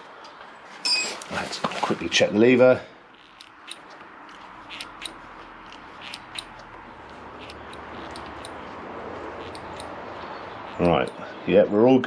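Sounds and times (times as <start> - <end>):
steady background noise: 0.0 - 12.0
clutch lever clicks: 3.2 - 6.8, 7.4 - 8.6.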